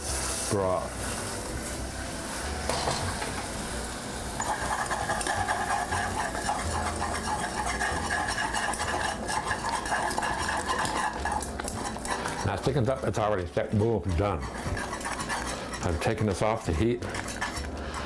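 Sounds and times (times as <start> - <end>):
light sizzle: 0.0 - 18.0
whisk stirring in a pan: 4.2 - 18.0.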